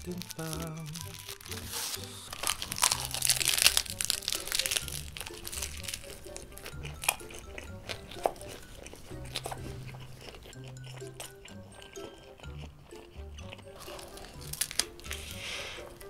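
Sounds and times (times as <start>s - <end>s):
plastic wrapper tearing and crinkling: 0.0s - 7.3s, 13.8s - 16.0s
background music: 0.0s - 16.0s
crunchy chewing: 0.0s - 16.0s.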